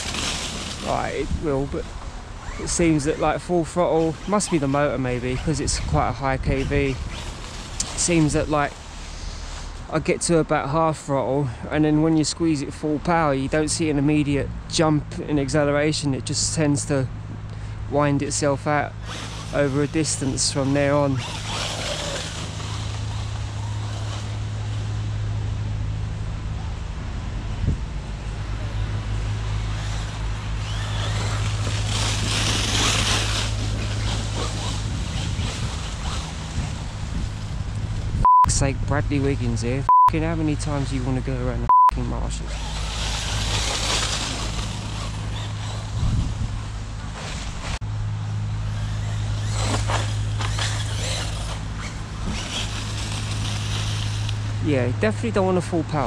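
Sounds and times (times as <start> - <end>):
electric motor whining: 0.0 - 9.8, 18.9 - 25.1, 28.2 - 38.1, 42.2 - 47.8, 48.4 - 54.6
tyres churning through leaves: 0.0 - 56.0.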